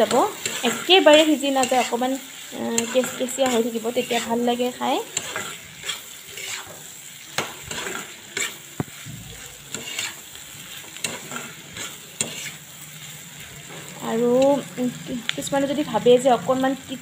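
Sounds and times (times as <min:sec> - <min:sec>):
spatula scraping a pan: 0:00.0 - 0:15.4
fish sizzling in a pan: 0:00.0 - 0:17.0.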